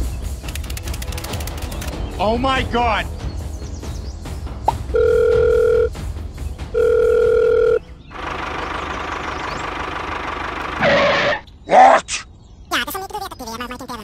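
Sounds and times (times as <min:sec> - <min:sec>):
telephone ringing tone beeps: 0:05.0 - 0:05.9, 0:06.8 - 0:07.8
motor running noise: 0:08.1 - 0:11.4.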